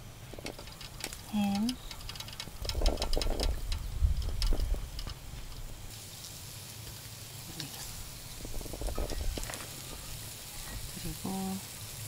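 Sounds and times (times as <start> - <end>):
steady low rumble: 0.0 - 5.9, 7.8 - 11.2
faint hiss: 0.0 - 12.0.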